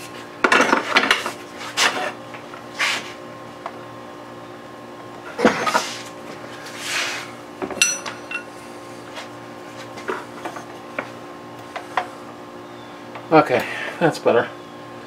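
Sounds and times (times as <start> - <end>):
metal pipe clanking on workbench: 7.8 - 8.5.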